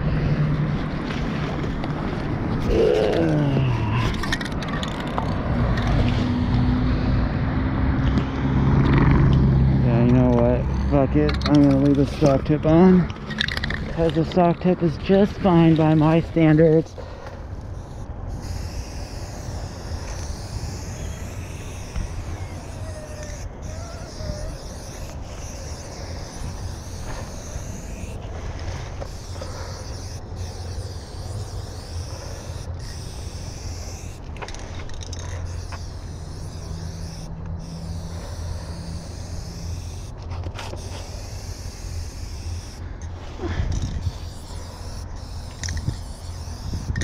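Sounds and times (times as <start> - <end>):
road traffic rumble: 0.0 - 47.0
spray paint can hissing: 15.2 - 47.0.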